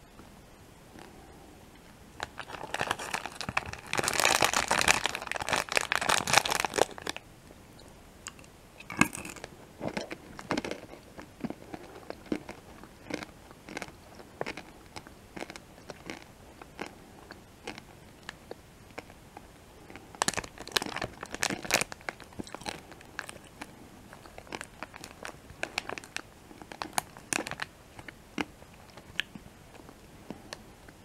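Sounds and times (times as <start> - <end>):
candies crunching while chewed: 2.2 - 7.2, 8.3 - 31.0
plastic packet crinkling: 2.2 - 7.2, 8.3 - 14.7, 20.2 - 27.7.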